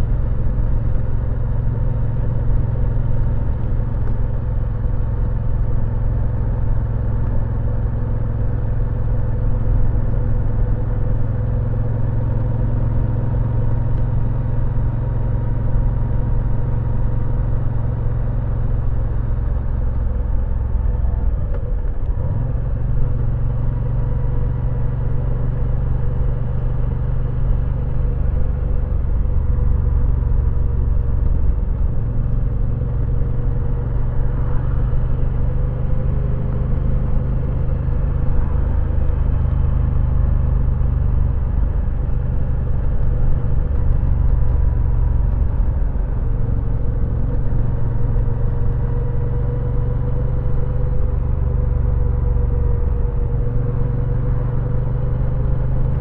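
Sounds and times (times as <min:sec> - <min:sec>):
road and wind noise: 0:00.0 - 0:56.0
motorcycle engine running: 0:20.1 - 0:56.0.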